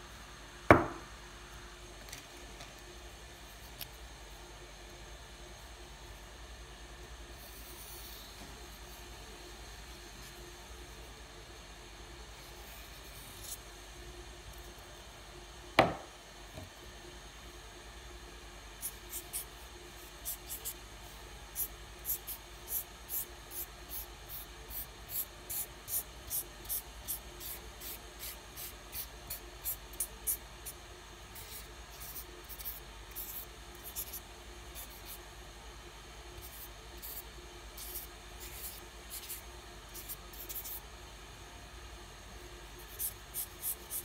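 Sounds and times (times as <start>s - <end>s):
felt-tip pen scratching on paper: 21.6s - 35.2s, 36.4s - 40.8s, 42.8s - 44.0s.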